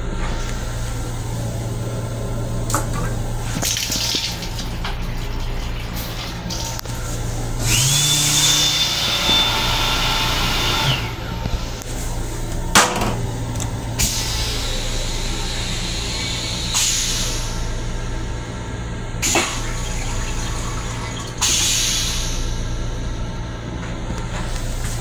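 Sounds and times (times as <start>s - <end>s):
toilet flush motor whining: 0.0s - 25.0s
low hum of moving train: 21.4s - 25.0s.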